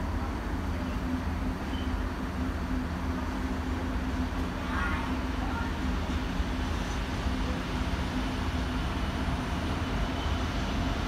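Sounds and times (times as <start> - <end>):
freight train rumbling past: 0.0 - 11.0.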